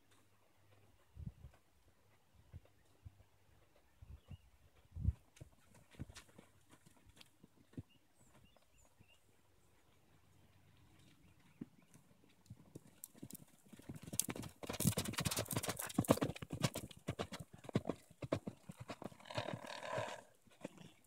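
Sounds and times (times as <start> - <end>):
horse hoofbeats on sand: 3.6 - 9.2, 11.4 - 21.0.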